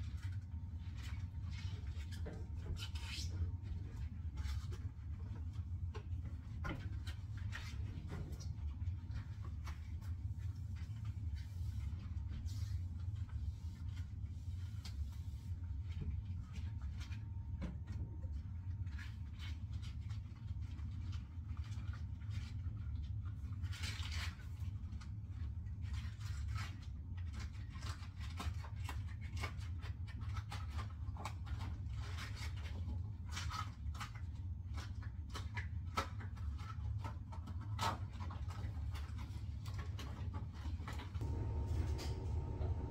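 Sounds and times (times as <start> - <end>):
steady low hum: 39.0 - 42.9.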